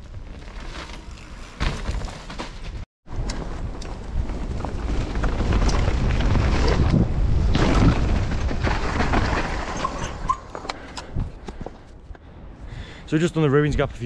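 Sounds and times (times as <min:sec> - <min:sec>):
bike tyre rumble on dirt: 0:00.0 - 0:10.3
bike knocks and rattles: 0:00.3 - 0:02.8, 0:07.5 - 0:10.3.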